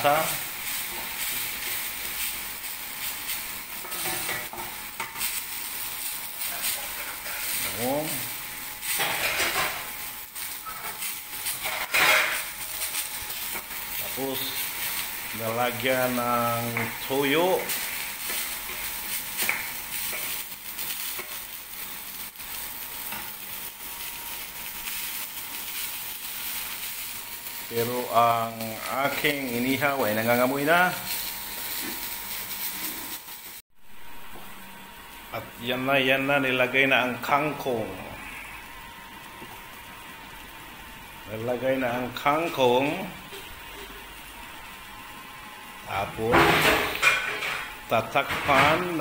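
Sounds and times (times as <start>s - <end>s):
food sizzling in a pan: 0.0s - 49.0s.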